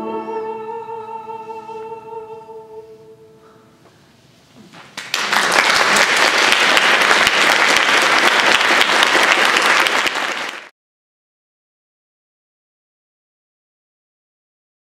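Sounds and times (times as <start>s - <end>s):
audience applauding: 4.9s - 10.7s.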